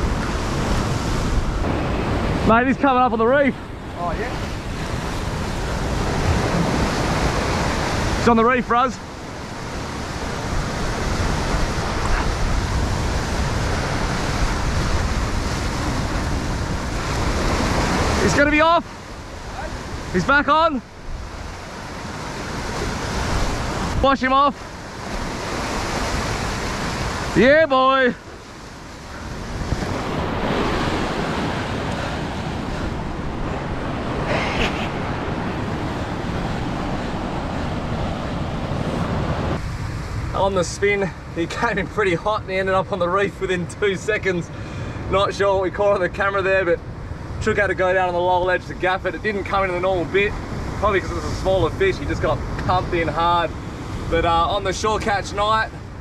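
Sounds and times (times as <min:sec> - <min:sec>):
wind on microphone: 0:00.0 - 0:08.3, 0:09.0 - 0:20.2, 0:28.2 - 0:41.4
ocean surf breaking over rocks: 0:00.0 - 0:56.0.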